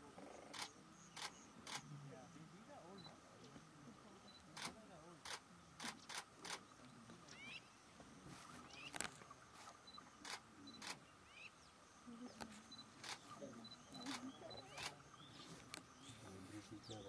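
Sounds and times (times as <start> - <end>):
faint bird chirps: 0.0 - 17.0.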